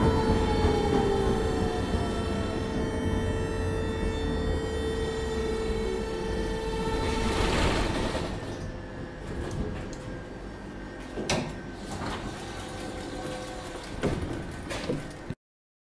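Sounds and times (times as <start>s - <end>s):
tram doors clunking: 0.0s - 10.2s
tram drive whine: 0.0s - 14.7s.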